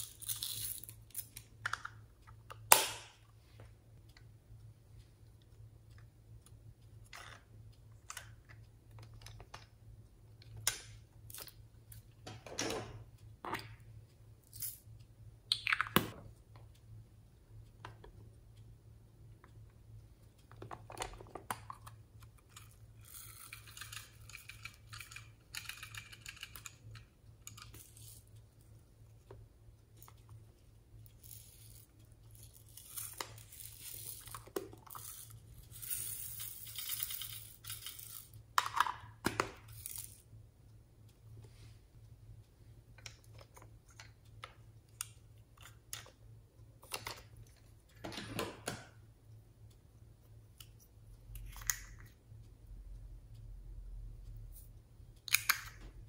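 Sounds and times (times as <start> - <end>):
plastic toys clicking and knocking: 7.0 - 9.8, 20.4 - 28.3, 31.1 - 40.3, 46.8 - 49.0, 55.2 - 56.0.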